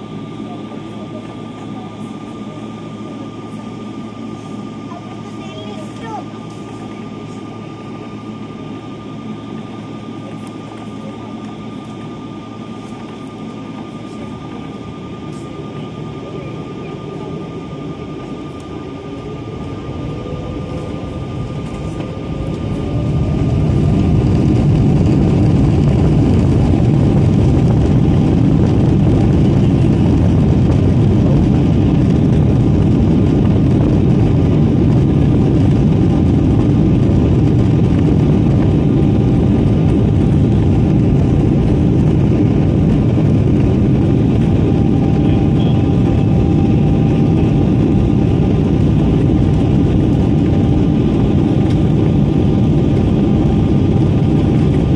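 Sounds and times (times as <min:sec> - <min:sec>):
jet engines spooling up: 0:00.0 - 0:54.9
runway rumble: 0:10.1 - 0:54.9.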